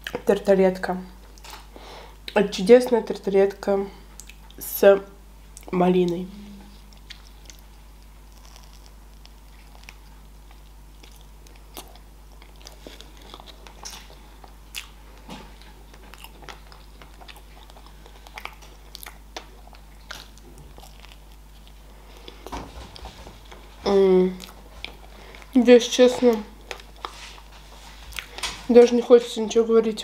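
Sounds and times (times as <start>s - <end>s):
faint steady hum: 0.0s - 30.0s
person chewing crunchy pastry: 6.8s - 22.6s, 24.3s - 25.6s, 26.3s - 28.5s.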